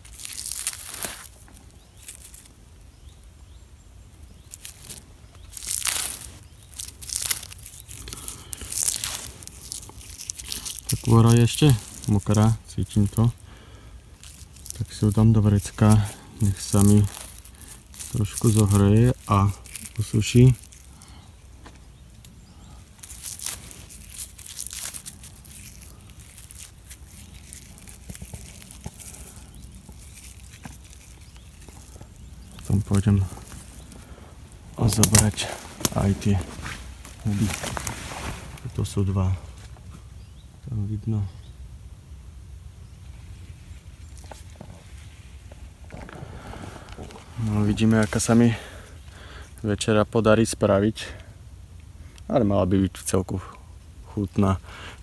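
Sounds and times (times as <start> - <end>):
bark ripping: 0.0 - 3.3, 4.1 - 39.0
clothing rustling: 23.0 - 39.0.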